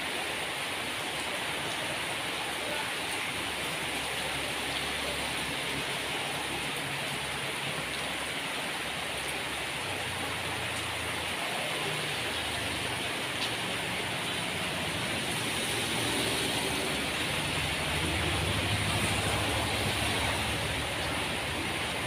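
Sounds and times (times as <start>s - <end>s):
rainwater splashing into puddle: 0.0s - 22.0s.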